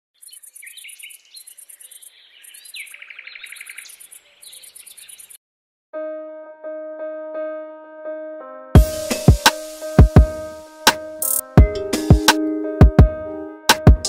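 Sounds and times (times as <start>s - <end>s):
birds chirping and singing: 0.2s - 5.4s
electric piano music: 6.0s - 14.0s.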